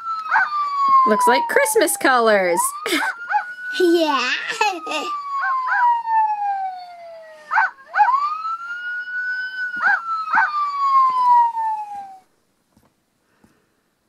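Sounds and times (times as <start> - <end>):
toy police siren: 0.0 - 12.3
cartoon dog voice howling: 4.1 - 5.1.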